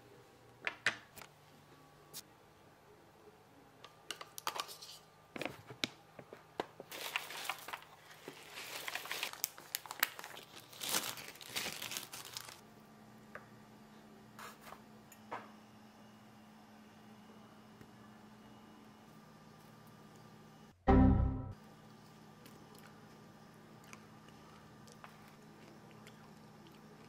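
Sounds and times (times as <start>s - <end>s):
plastic bag crinkling: 6.9s - 12.6s.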